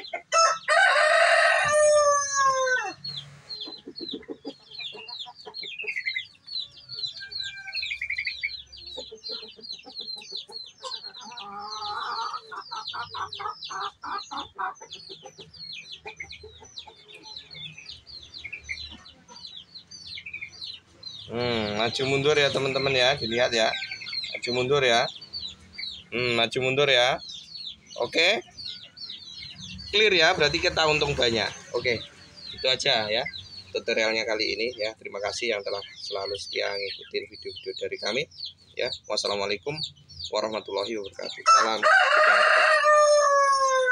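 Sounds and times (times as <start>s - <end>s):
small birds chirping: 0.0s - 43.9s
rooster crowing: 0.3s - 3.1s, 6.8s - 8.4s, 41.4s - 43.9s
rapid clucking calls: 2.8s - 7.2s, 7.8s - 41.8s.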